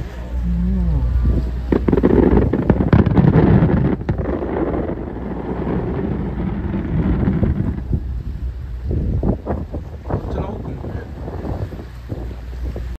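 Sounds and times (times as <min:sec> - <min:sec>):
wind buffeting microphone: 0:00.0 - 0:12.9
fireworks booming and crackling: 0:01.6 - 0:08.2.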